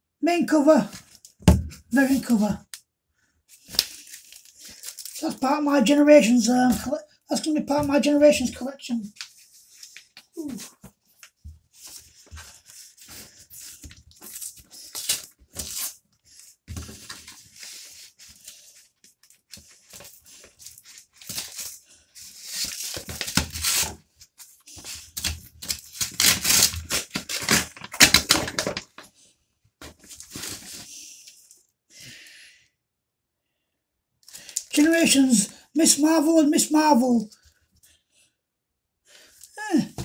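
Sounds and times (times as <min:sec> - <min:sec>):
cardboard tearing: 0:11.8 - 0:18.8, 0:19.6 - 0:24.1, 0:24.8 - 0:29.0.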